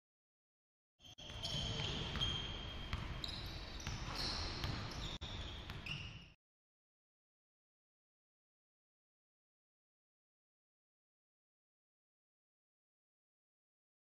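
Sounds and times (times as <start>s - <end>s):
sneakers squeaking: 1.0s - 6.4s
basketball bouncing: 1.3s - 5.1s.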